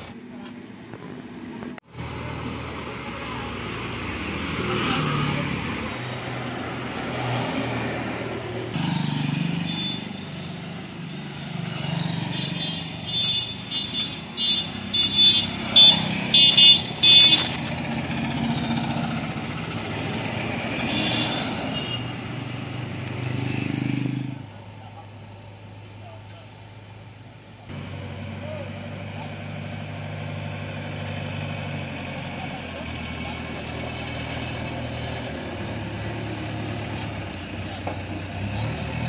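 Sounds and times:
vehicle engines running: 0.0s - 39.0s
motorcycle passing: 2.0s - 24.5s.

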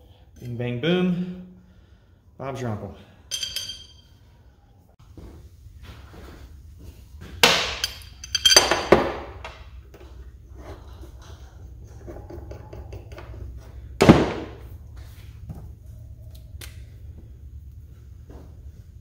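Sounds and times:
metal brackets clanking on metal: 3.3s - 4.0s, 7.4s - 9.6s.

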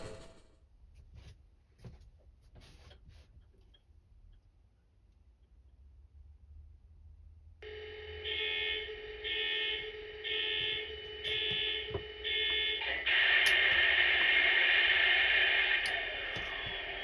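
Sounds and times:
electronic tone pulses: 7.6s - 17.0s
loud steady locomotive sound: 7.6s - 17.0s
steady hum: 7.6s - 17.0s.

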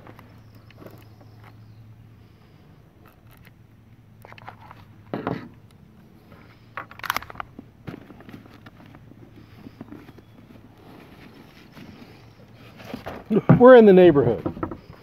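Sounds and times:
metallic clicks of gun handling: 6.7s - 7.6s.

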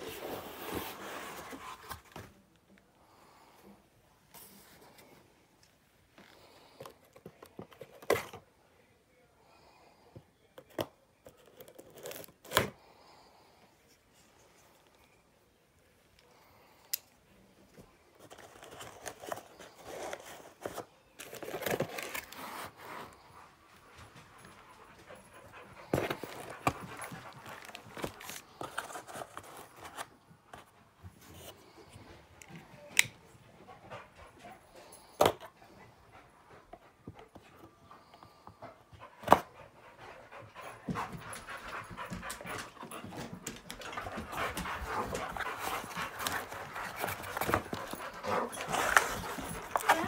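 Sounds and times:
dog panting: 23.3s - 28.4s, 33.5s - 34.9s, 35.7s - 50.0s.

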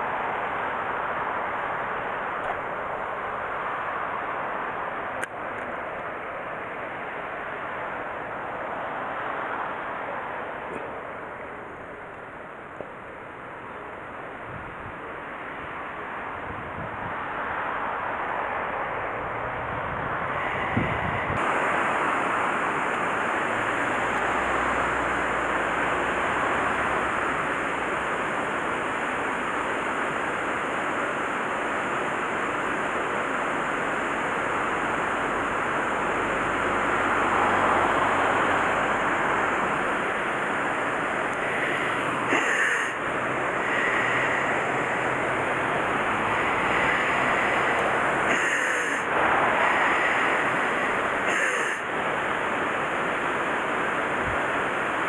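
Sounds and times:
water rushing through weir: 15.1s - 55.0s.

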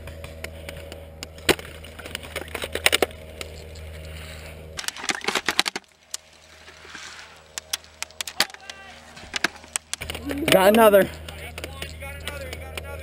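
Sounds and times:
low hum: 0.0s - 13.0s
sharp clicks and knocks on wood: 7.6s - 12.9s.

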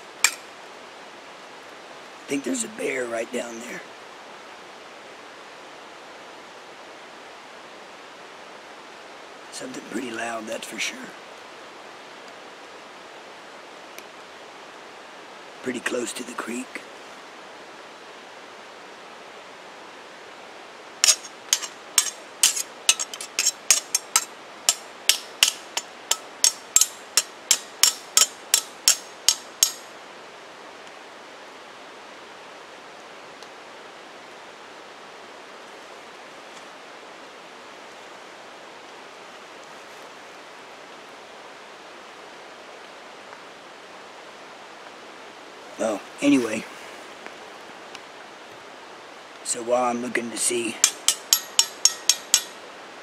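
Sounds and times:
creek flowing: 19.8s - 30.4s
sharp knocks: 21.0s - 29.8s, 50.8s - 52.5s.

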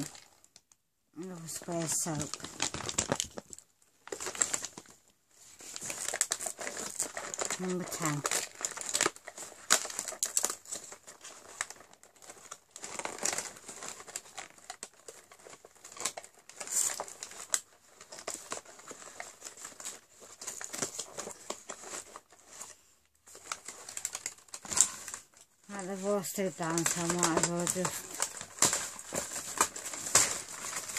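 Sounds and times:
cardboard crinkling and tearing: 0.0s - 0.6s, 1.2s - 30.9s.

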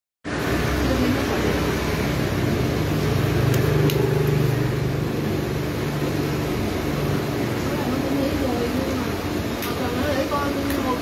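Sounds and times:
street noise: 0.2s - 11.0s.

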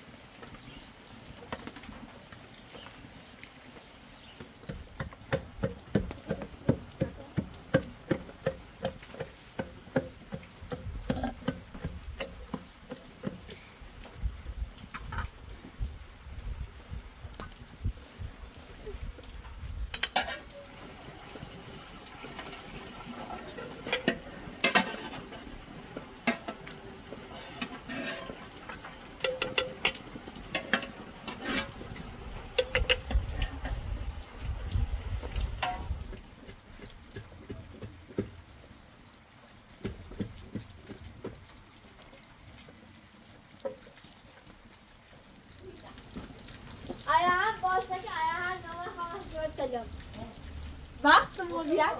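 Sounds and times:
metal kitchenware clinking and scraping: 20.0s - 20.6s, 23.5s - 25.5s, 27.3s - 31.8s.

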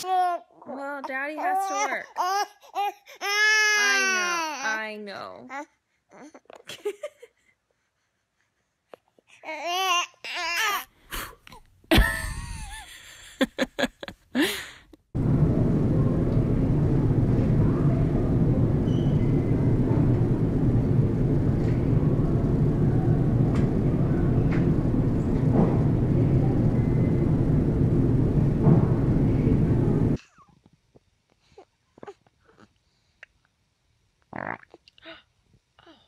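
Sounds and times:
baby's voice wavering: 0.0s - 4.9s
loud background rumble: 15.2s - 30.2s.

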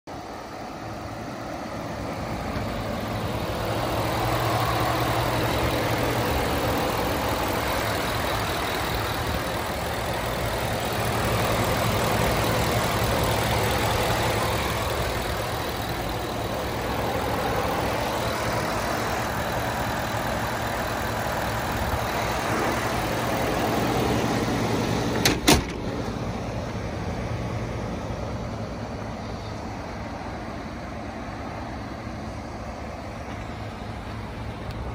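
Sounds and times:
pickup engine idling: 0.1s - 34.9s
car hood slamming shut: 25.2s - 25.9s.

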